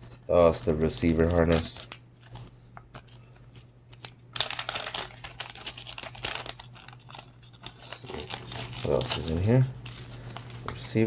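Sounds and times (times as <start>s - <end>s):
plastic bag crinkling: 3.2s - 11.0s.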